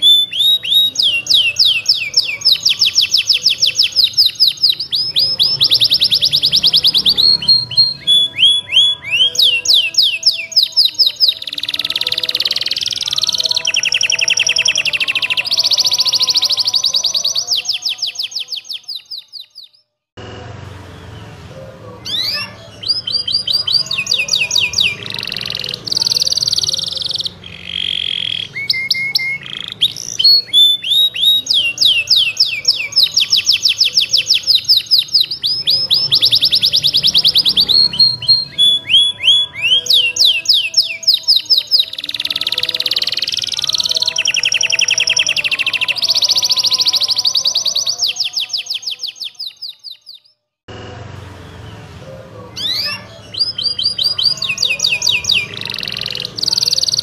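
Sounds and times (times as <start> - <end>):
canary singing fast trills: 0.0 - 19.9, 21.1 - 50.4, 52.5 - 57.0.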